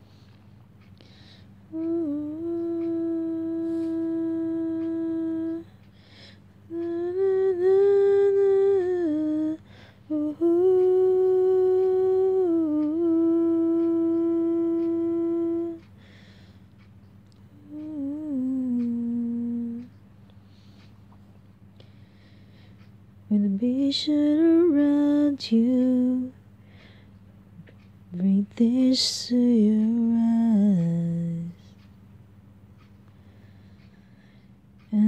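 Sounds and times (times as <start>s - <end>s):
woman humming: 1.7s - 5.8s, 6.7s - 15.9s, 17.3s - 20.0s, 27.6s - 31.6s.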